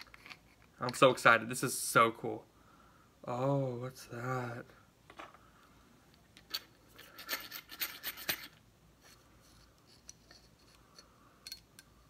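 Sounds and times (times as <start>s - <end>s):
metal threads scraping and clicking: 6.1s - 11.9s.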